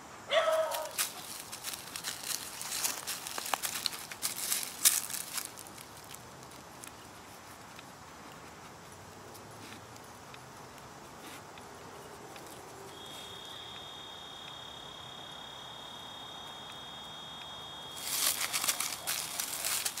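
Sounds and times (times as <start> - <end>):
dry leaves rustling underfoot: 0.3 - 7.8, 18.0 - 20.0
crunching in dry leaves: 0.3 - 8.4, 17.9 - 20.0
high insect buzz: 12.7 - 20.0.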